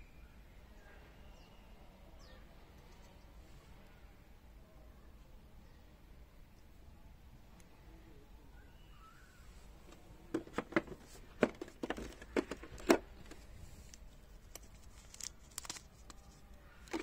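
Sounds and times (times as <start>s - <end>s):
plastic sleeve rustling: 10.3s - 17.0s.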